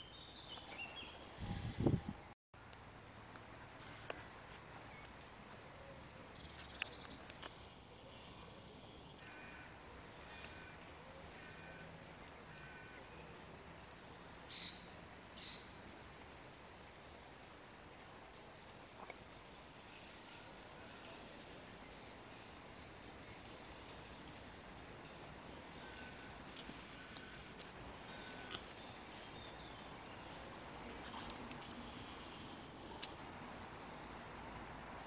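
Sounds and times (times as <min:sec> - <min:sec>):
small birds chirping: 0:19.9 - 0:33.2.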